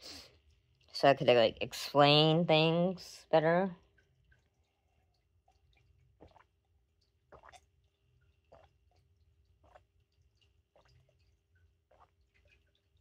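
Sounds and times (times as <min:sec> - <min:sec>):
faint gulps and swallows: 0:03.8 - 0:13.0.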